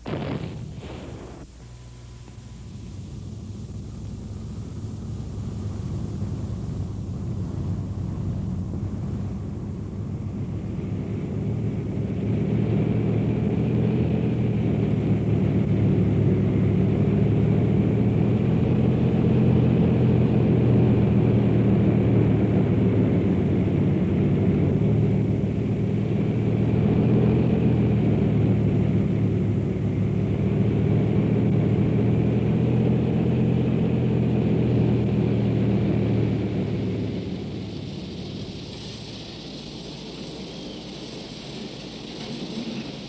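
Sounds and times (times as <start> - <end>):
low engine rumble: 0.0 - 43.0.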